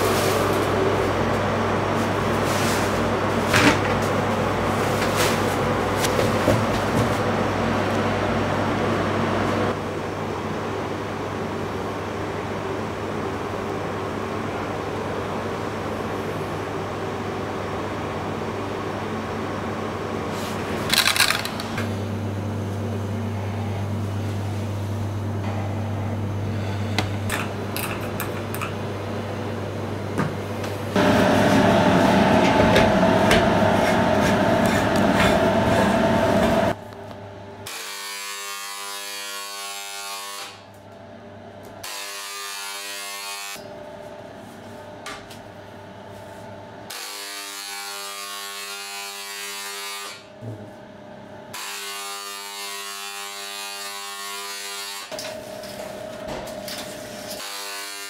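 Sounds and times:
loud steady noise: 0:30.9 - 0:37.6
electric spray gun buzzing: 0:31.0 - 0:36.8.

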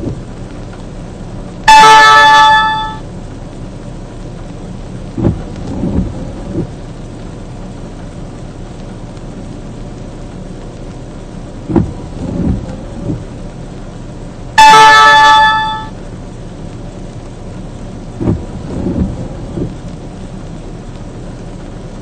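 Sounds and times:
rain on a vehicle: 0:00.0 - 0:22.0
loud horn-like tone: 0:01.6 - 0:03.0, 0:14.6 - 0:15.9.

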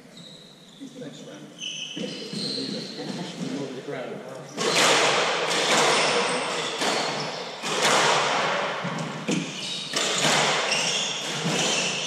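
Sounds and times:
squash ball hits echoing: 0:04.6 - 0:12.0.

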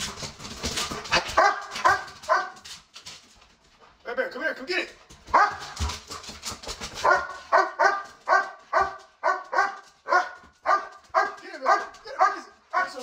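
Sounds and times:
dog claws clattering on hard floor: 0:00.0 - 0:03.8, 0:05.0 - 0:12.0
dog barking: 0:01.1 - 0:02.6, 0:05.3 - 0:05.9, 0:06.9 - 0:13.0.

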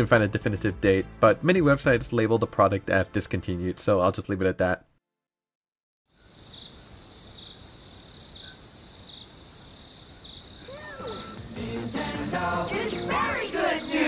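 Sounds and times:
crickets chirping: 0:06.1 - 0:14.0
whistle-like tones: 0:10.6 - 0:11.5.

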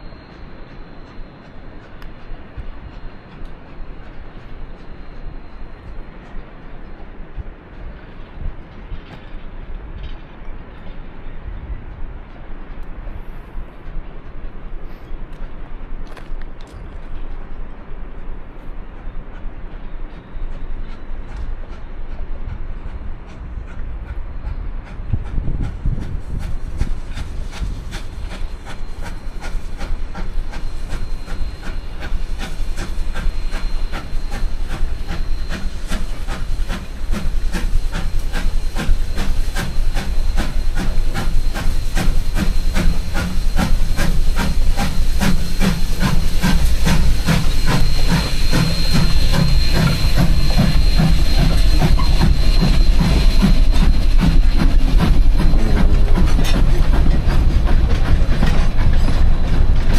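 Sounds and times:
steam locomotive chuffing: 0:00.0 - 0:59.9
steady high hiss: 0:26.4 - 0:56.4.

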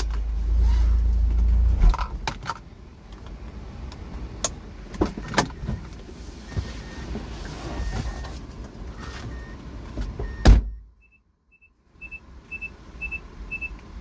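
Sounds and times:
loud thump: 0:10.2 - 0:10.8.

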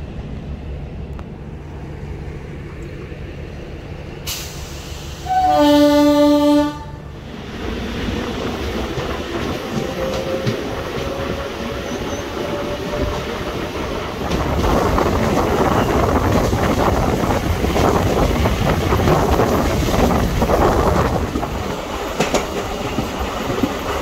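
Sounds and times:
train rumble: 0:00.0 - 0:24.0
wheels clacking over rails: 0:07.6 - 0:24.0.

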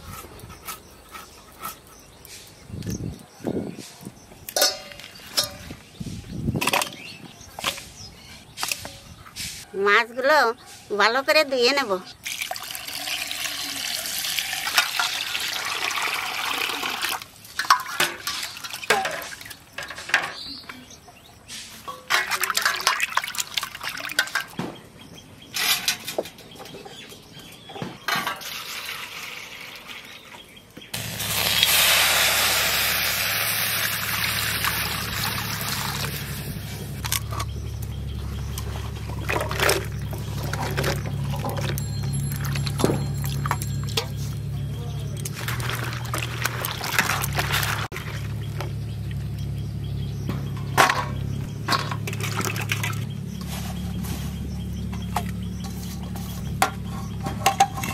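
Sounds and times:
water splashing in a steel bowl: 0:12.2 - 0:19.8, 0:22.0 - 0:24.6, 0:31.0 - 0:36.6, 0:38.8 - 0:44.2, 0:45.2 - 0:49.2, 0:51.7 - 0:53.0
rushing water: 0:31.0 - 0:36.4.

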